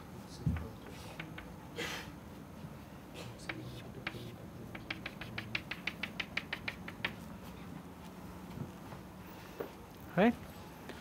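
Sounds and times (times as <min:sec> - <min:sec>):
chalk tapping on chalkboard: 0:00.5 - 0:01.5, 0:03.4 - 0:07.3.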